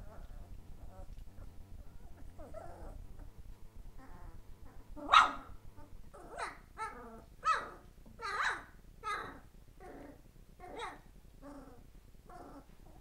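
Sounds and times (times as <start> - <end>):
puppy whining: 0.0 - 13.0
puppies barking and yipping: 4.0 - 9.5.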